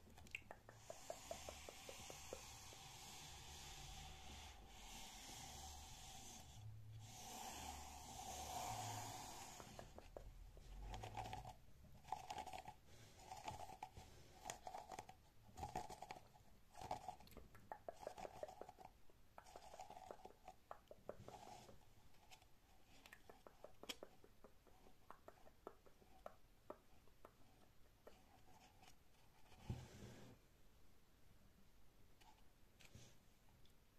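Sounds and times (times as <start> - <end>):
scratching and squeezing crocheted toy: 0.0 - 29.7
finger clicks and taps: 0.1 - 3.0, 9.5 - 11.1, 17.3 - 21.8, 22.9 - 28.9.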